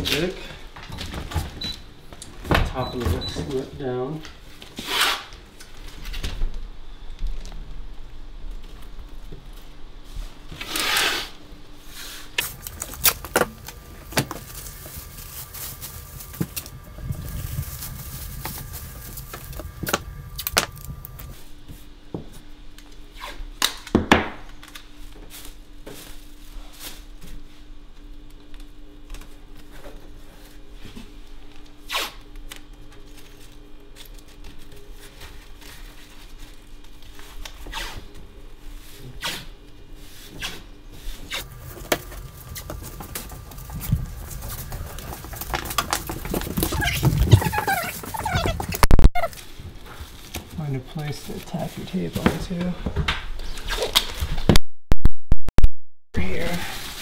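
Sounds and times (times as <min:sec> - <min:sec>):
tape and film unrolling rasp: 0:10.5 - 0:11.4, 0:12.0 - 0:21.4, 0:53.4 - 0:54.5
plastic sheeting crinkling: 0:12.4 - 0:21.4, 0:33.0 - 0:37.6.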